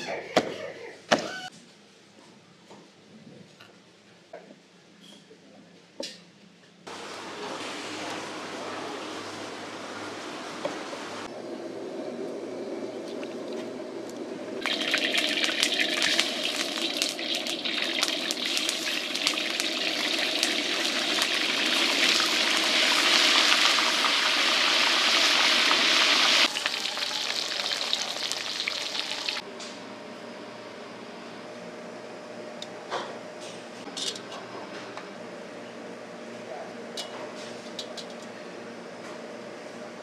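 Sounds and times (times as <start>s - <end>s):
fish sizzling in hot oil: 14.6s - 29.4s.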